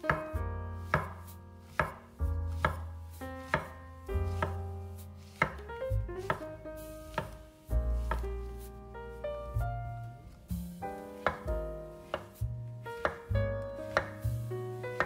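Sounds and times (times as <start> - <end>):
knife chopping on cutting board: 0.1 - 2.0, 2.6 - 2.9, 3.5 - 4.6, 5.3 - 6.5, 7.1 - 7.4, 8.0 - 8.3, 11.2 - 12.4, 13.0 - 15.0.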